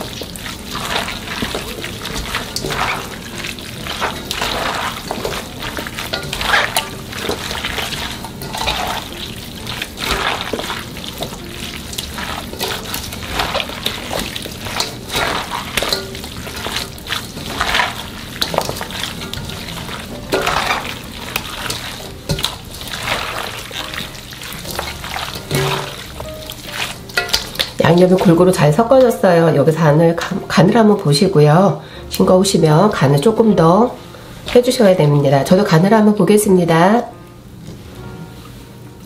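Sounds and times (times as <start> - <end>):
wet squelching rustle of greens: 0.0 - 30.2, 33.1 - 36.1.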